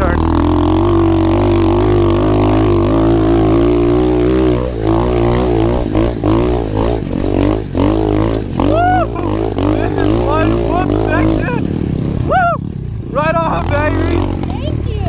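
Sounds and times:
motorbike engine revving: 0.0 - 15.0.

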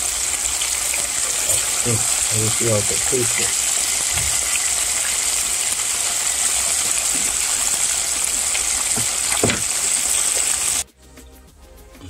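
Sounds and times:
chicken deep-frying in oil: 0.0 - 10.8.

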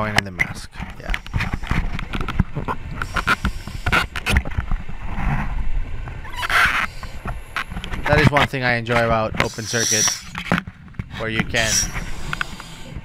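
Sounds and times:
water rumbling and bubbling: 0.0 - 13.0
rush of noise: 9.3 - 13.0.

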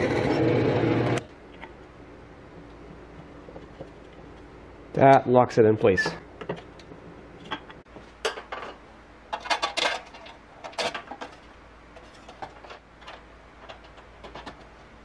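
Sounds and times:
wood and metal clicks and clatters: 9.3 - 14.9.

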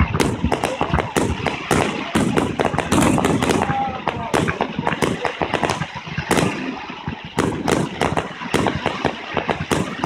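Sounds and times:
fireworks bursting: 0.0 - 10.0.

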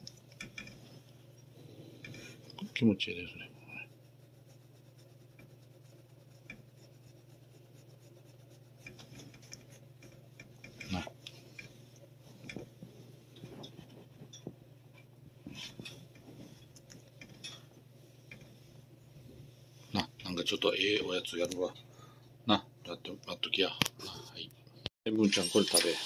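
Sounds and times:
steady low hum: 0.0 - 26.0
glove rubbing cat fur: 0.2 - 14.3, 15.2 - 20.0.

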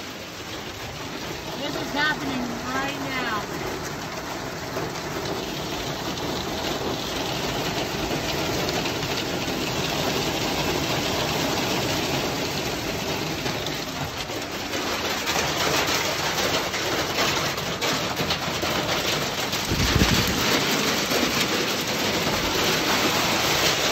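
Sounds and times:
hail clattering on pavement: 0.0 - 23.9.

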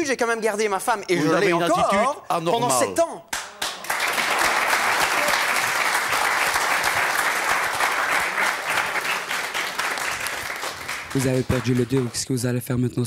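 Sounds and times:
studio audience applauding: 3.3 - 12.8.

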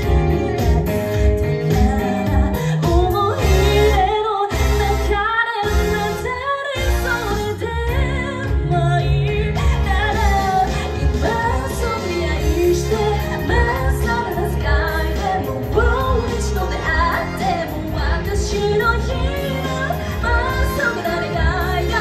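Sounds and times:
amplified backing music: 0.0 - 22.0
woman singing into a microphone: 0.0 - 22.0.

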